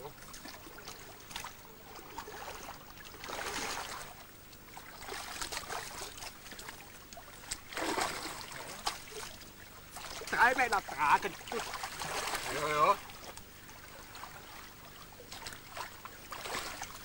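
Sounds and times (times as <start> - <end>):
river water sloshing and splashing: 0.0 - 17.0.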